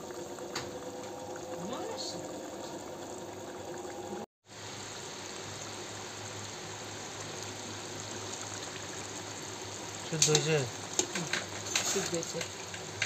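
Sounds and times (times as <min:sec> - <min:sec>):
curry sizzling in a wok: 0:04.4 - 0:13.0.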